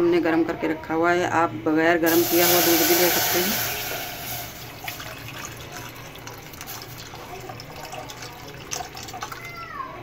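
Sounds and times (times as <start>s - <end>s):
milk pouring into metal pot: 2.1s - 9.7s.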